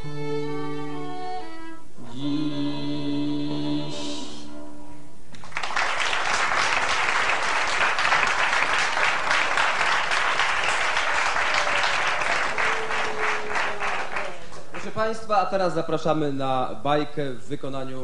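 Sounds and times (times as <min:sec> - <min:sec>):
violin notes: 0:00.0 - 0:05.1
audience applause: 0:05.4 - 0:15.1.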